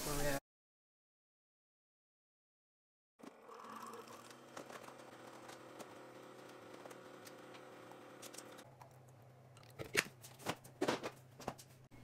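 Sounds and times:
coffee maker humming: 3.2 - 9.0.

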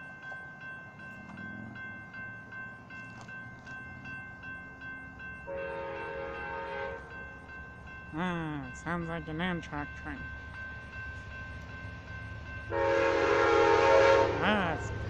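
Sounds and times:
crossing warning bell ringing: 0.0 - 15.0
train horn chord: 5.5 - 7.2, 12.7 - 14.9.

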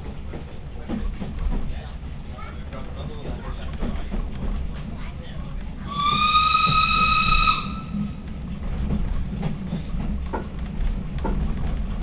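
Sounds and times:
train rumbling along rails: 0.0 - 12.0
steam locomotive whistle: 5.9 - 8.1.

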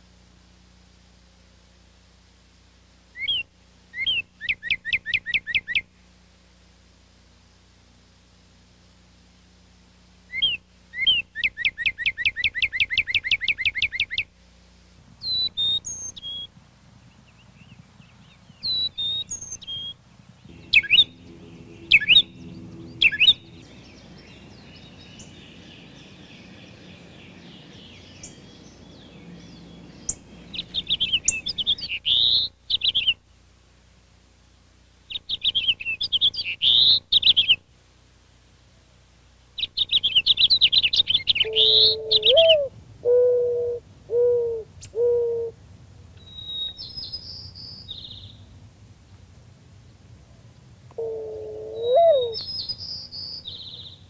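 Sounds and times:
short sharp bird calls: 18.6 - 27.3, 39.8 - 42.7
thin rising whistle: 20.5 - 25.3
dove cooing: 20.5 - 27.1, 41.4 - 45.6, 50.9 - 52.4
finch warbling song: 20.5 - 27.1.

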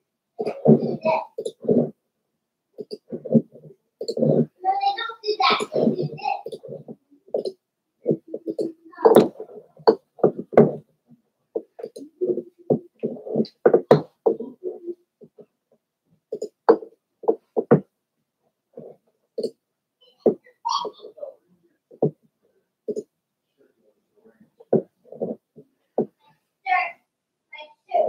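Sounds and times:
muffled person's voice: 0.4 - 1.3, 4.3 - 6.7.

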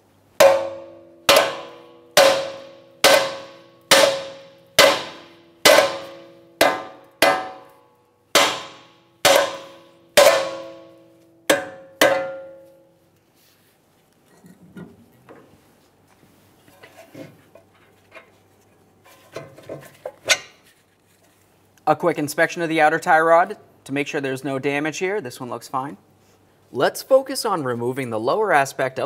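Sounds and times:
hammer striking steel: 0.4 - 12.9.

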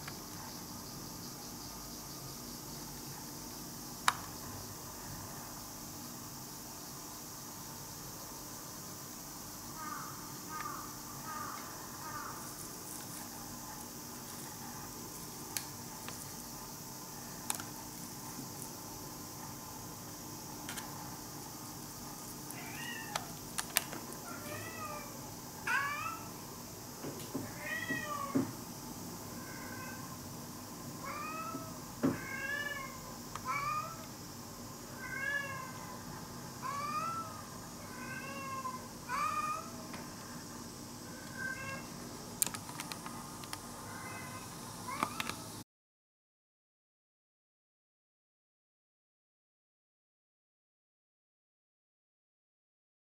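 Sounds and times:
faint steady hiss: 0.0 - 45.6
cat meowing: 22.6 - 23.3, 24.3 - 26.3, 27.5 - 28.4, 31.1 - 34.0, 35.0 - 35.9, 36.6 - 39.8, 41.2 - 41.9.

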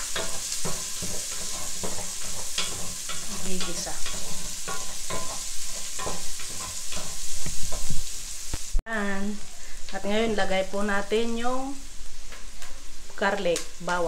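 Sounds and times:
wooden spatula scraping pan: 0.0 - 8.2
onions and pork sizzling: 0.0 - 14.0.

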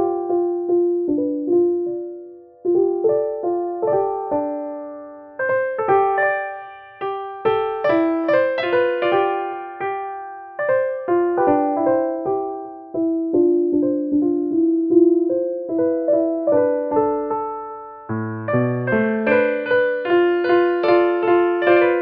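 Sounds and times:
slow piano music: 0.0 - 22.0.

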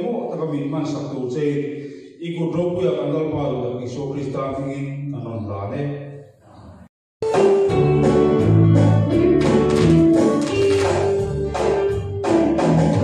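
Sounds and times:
song: 7.2 - 13.0.

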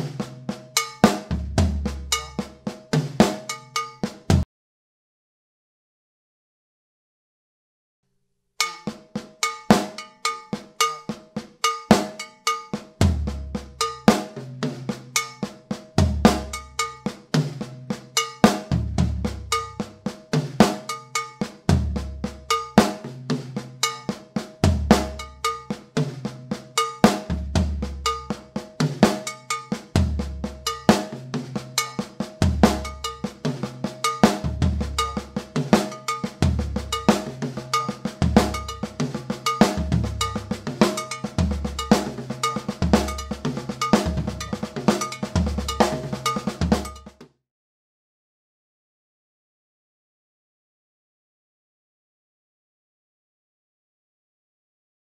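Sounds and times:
drum kit groove: 0.0 - 4.5, 8.6 - 47.4
cowbell ringing: 2.1 - 2.5, 3.4 - 4.0, 8.6 - 12.9, 13.8 - 14.1, 18.2 - 18.4, 19.5 - 19.9, 20.8 - 21.4, 22.5 - 22.8, 25.1 - 25.8, 26.7 - 27.0, 28.0 - 28.5, 29.1 - 29.8, 30.6 - 47.2.

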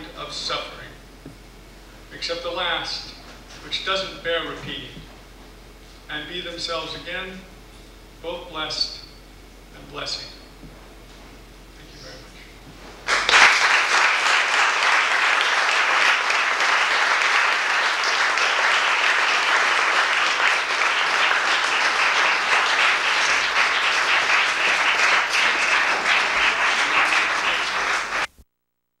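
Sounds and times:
audience applauding: 13.1 - 28.3.

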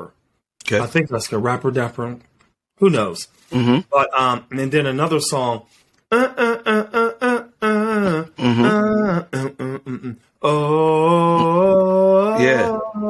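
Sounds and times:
man singing unaccompanied: 10.4 - 13.0.

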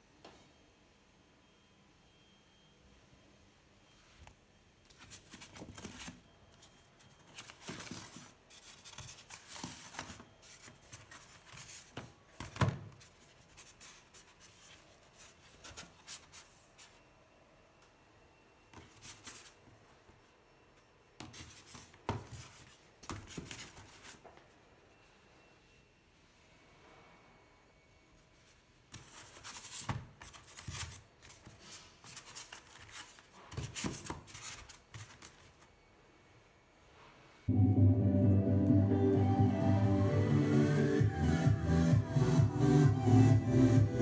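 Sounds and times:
packaging rustling and scraping: 4.9 - 17.0.

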